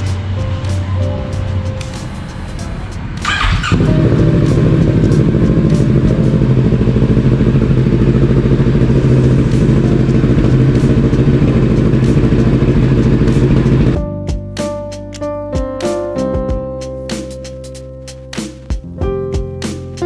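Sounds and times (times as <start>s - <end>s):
motorcycle engine starting and idling: 3.2s - 14.0s.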